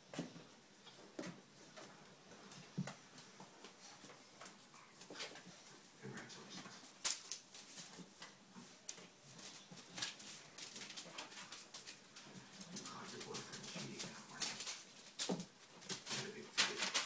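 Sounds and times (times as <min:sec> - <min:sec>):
paper rustling and crinkling: 0:05.0 - 0:17.0
puppy claws scrabbling: 0:07.0 - 0:17.0.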